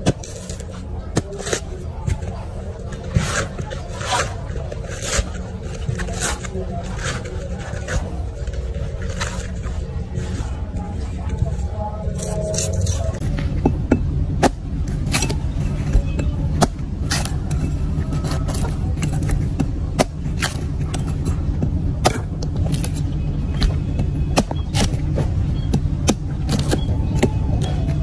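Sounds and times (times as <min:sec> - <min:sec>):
cleaver chopping coconut: 0:00.0 - 0:10.3, 0:12.2 - 0:28.0
steady low hum: 0:00.0 - 0:28.0.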